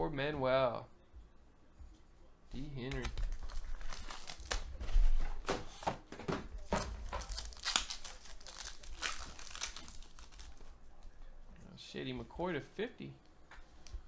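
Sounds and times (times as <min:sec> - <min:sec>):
foil wrapper crinkling and tearing: 0:02.9 - 0:04.8, 0:07.0 - 0:10.7.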